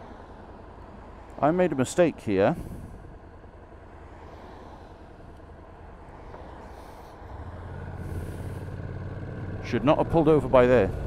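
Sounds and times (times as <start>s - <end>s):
motorcycle engine running: 7.4s - 11.0s.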